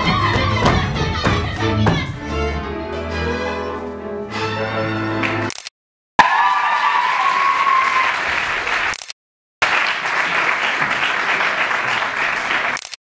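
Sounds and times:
audience applauding: 6.2s - 9.0s, 9.6s - 12.9s.

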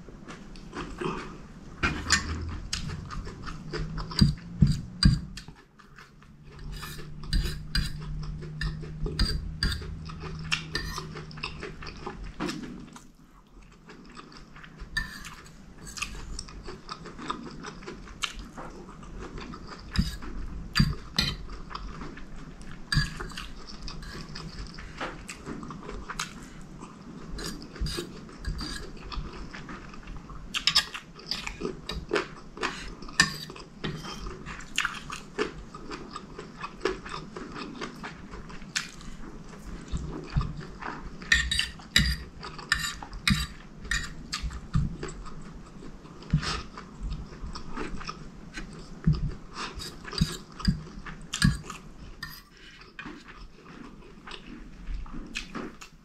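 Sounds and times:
low steady hum: 0.0s - 56.0s
wet chewing and mouth sounds: 0.1s - 56.0s
cutlery scraping on ceramic plate: 1.9s - 3.0s, 3.6s - 5.6s, 6.5s - 11.5s, 15.0s - 16.4s, 19.9s - 21.5s, 22.9s - 24.6s, 27.4s - 29.2s, 30.6s - 32.1s, 32.7s - 34.3s, 41.2s - 44.7s, 49.7s - 53.4s.

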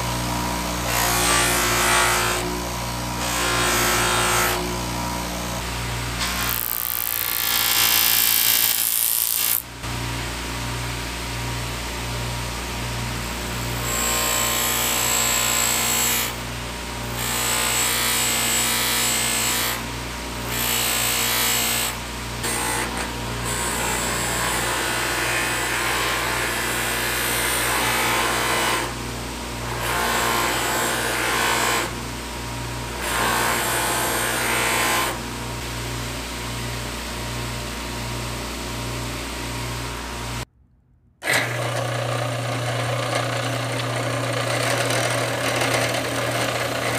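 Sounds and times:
power tool abrasive grinding: 0.0s - 9.8s, 13.6s - 29.0s, 29.6s - 32.1s, 32.9s - 35.3s, 41.2s - 46.9s.

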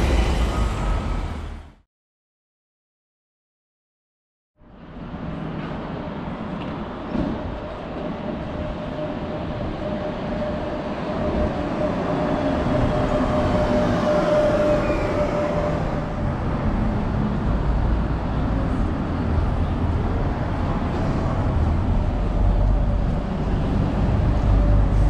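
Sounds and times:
bus driving past: 0.0s - 1.8s, 4.6s - 25.0s
car passing: 0.0s - 1.8s.

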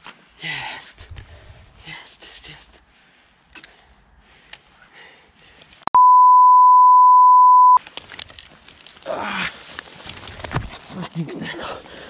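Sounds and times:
censor bleep tone: 5.9s - 7.8s.

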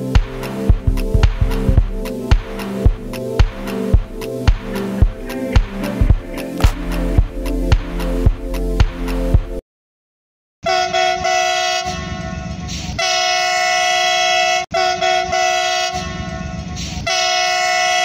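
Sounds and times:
low rumble: 0.0s - 9.6s
train horn blasts: 10.6s - 18.0s.

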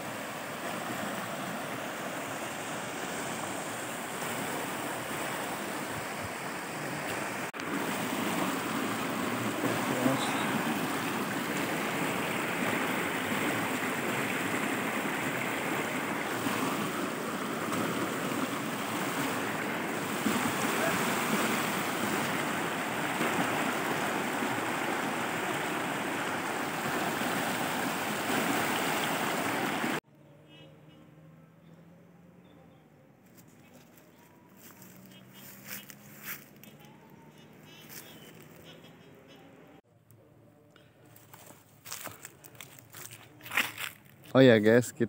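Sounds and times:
stream rushing over rocks: 0.0s - 30.0s.

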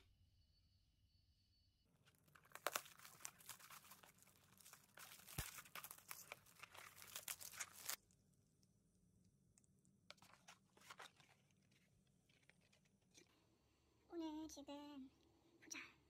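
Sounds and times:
plastic wrap tearing and crinkling: 2.0s - 8.0s, 10.1s - 12.9s.

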